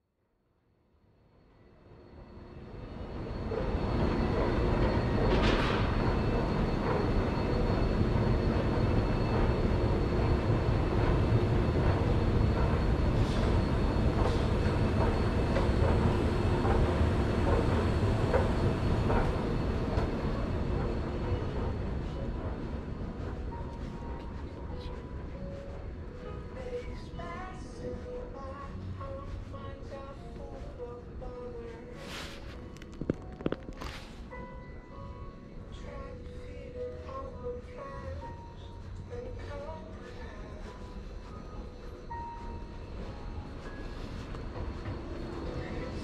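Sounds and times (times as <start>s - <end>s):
low rumbling noise: 2.2s - 36.4s.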